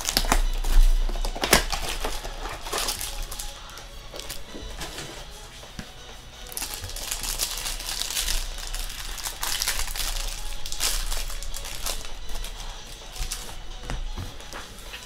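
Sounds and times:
wrapper crinkling: 0:00.0 - 0:05.4, 0:06.5 - 0:15.0.

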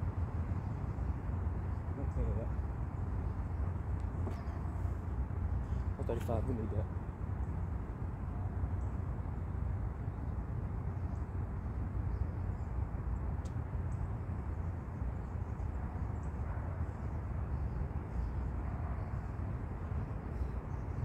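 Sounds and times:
low outdoor rumble: 0:00.0 - 0:21.0.

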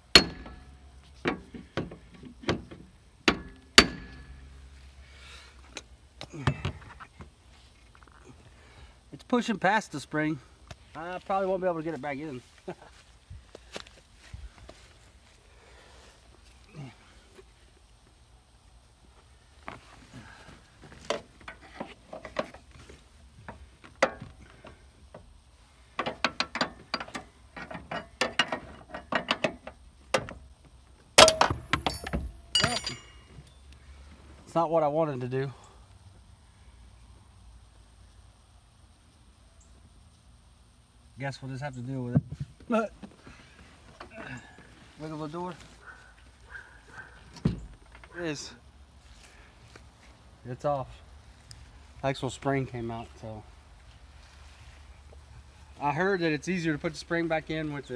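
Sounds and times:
metal clinks and knocks: 0:00.0 - 0:04.7, 0:26.0 - 0:30.3, 0:31.2 - 0:33.6
metal-on-metal impacts: 0:00.0 - 0:04.7, 0:31.2 - 0:33.4.

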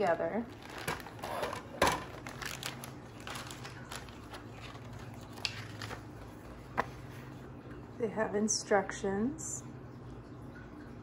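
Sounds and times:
low steady hum: 0:00.0 - 0:11.0
plastic pieces rustling: 0:00.5 - 0:06.4.

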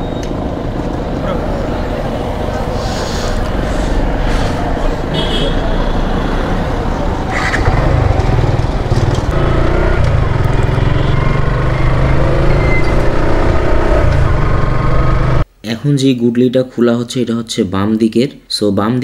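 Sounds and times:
motorcycle engine running: 0:07.3 - 0:15.4.

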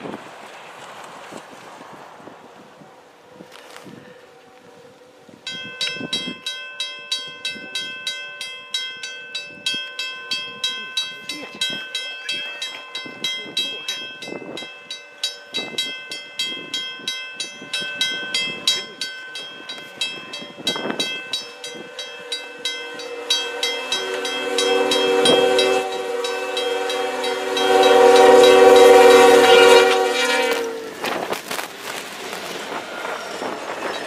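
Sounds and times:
level crossing bell ringing: 0:05.5 - 0:29.8
locomotive horn chord: 0:21.4 - 0:31.0.

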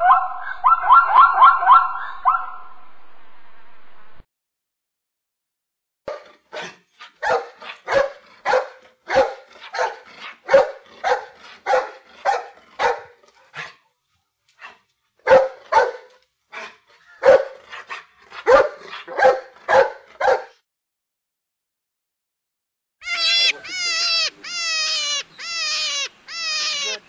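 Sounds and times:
dog barking: 0:00.0 - 0:02.6, 0:06.1 - 0:13.8, 0:14.6 - 0:20.6.

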